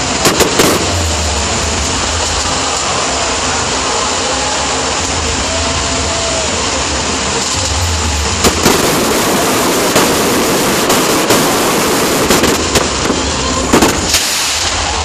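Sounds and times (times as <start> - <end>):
firework shells banging: 0.0 - 2.8, 7.4 - 15.0
fireworks crackling and hissing: 0.0 - 15.0.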